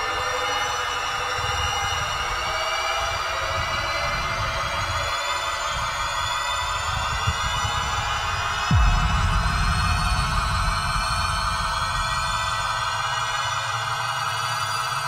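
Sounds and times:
film score drone: 0:00.1 - 0:15.0
low rumble: 0:08.6 - 0:14.3.

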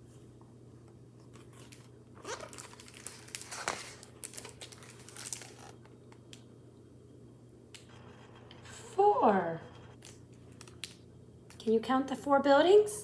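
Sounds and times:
book page turning: 0:01.2 - 0:06.0.

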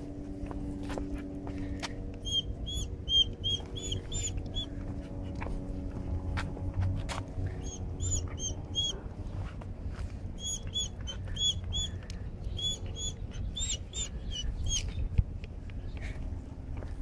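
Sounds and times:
low rumbling wind: 0:00.0 - 0:17.0
dog squealing: 0:02.3 - 0:04.4, 0:08.0 - 0:09.0.

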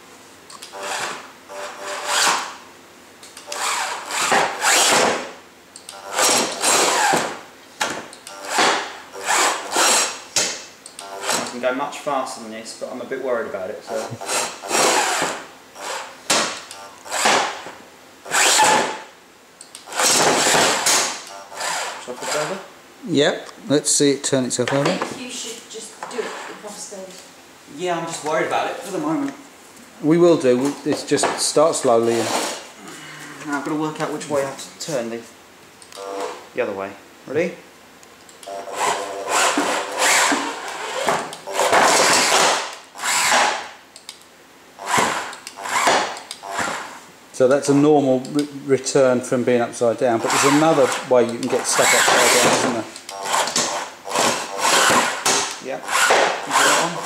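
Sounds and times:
electric motor running: 0:00.7 - 0:02.5, 0:03.4 - 0:05.2, 0:06.0 - 0:07.4, 0:08.4 - 0:10.2, 0:11.0 - 0:11.6, 0:13.9 - 0:16.2, 0:18.3 - 0:19.0, 0:19.9 - 0:22.6, 0:38.5 - 0:43.6, 0:44.8 - 0:47.0, 0:50.1 - 0:57.0.

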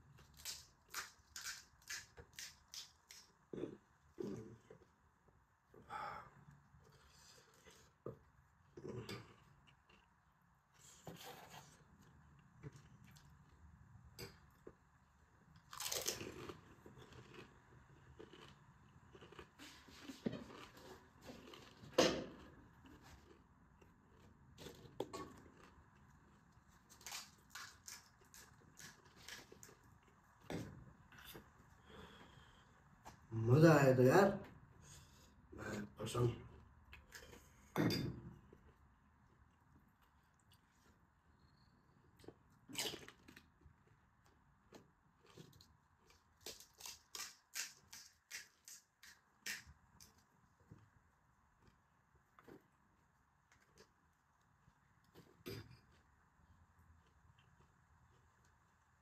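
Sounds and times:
crisp shells crunching when chewed: 0:15.6 - 0:19.8, 0:44.7 - 0:50.2.

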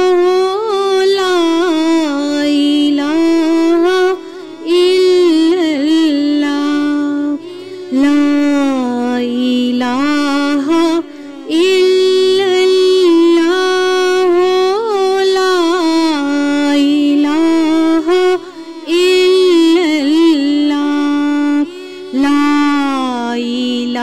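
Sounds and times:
person singing a lullaby: 0:00.0 - 0:24.0.

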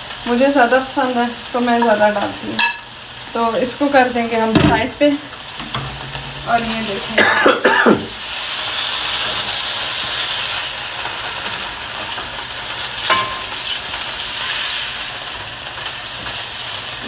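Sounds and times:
chicken sizzling in hot oil: 0:00.0 - 0:17.0
spoon clinking: 0:02.6 - 0:02.9, 0:13.1 - 0:13.6.

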